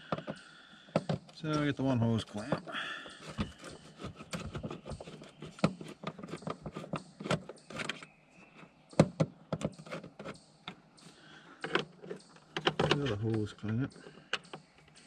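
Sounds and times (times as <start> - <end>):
hand tools clicking on metal: 9.0 - 15.0.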